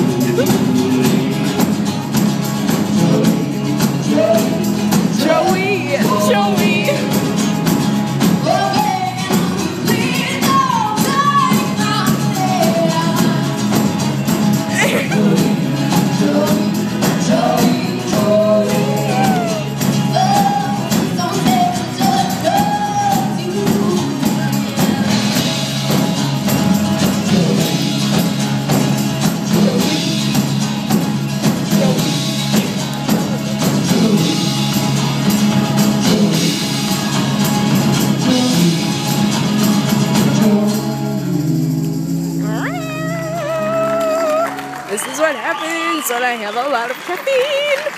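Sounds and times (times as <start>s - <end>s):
voices singing: 0.0s - 7.7s, 8.3s - 13.9s, 14.6s - 45.8s
rock band playing live: 0.0s - 47.9s.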